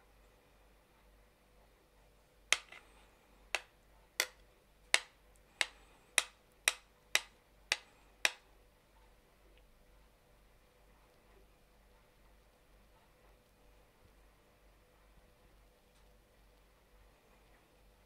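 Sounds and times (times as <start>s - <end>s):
metal spoon tapping on plate: 2.6s - 2.8s, 3.6s - 4.4s, 5.0s - 8.4s.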